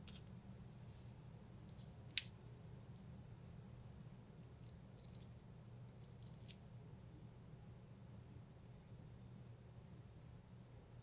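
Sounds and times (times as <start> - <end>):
small metal parts clicking: 1.7 - 2.3, 4.4 - 6.6.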